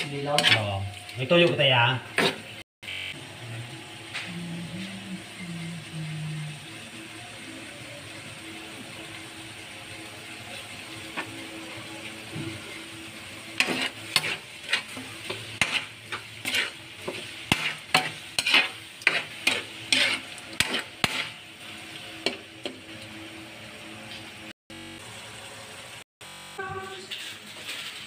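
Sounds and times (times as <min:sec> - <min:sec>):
spatula scraping wok: 0:00.0 - 0:02.6, 0:10.1 - 0:23.2, 0:26.8 - 0:28.0
meat sizzling in a wok: 0:00.0 - 0:28.0.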